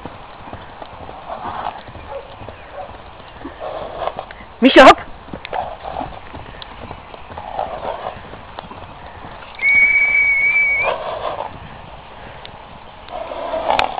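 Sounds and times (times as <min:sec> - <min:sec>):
horse hooves thudding on grass: 0:00.0 - 0:13.9
person whistling: 0:09.6 - 0:10.9.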